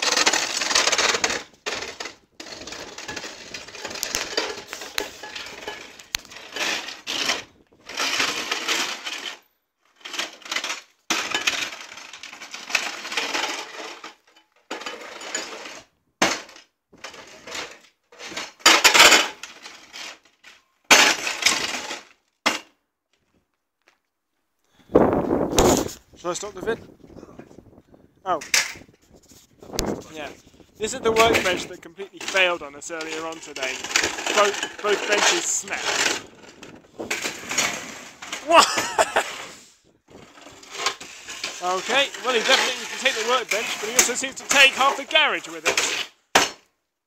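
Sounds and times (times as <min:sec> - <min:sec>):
robot chassis rattling and clattering: 0:31.2 - 0:38.4.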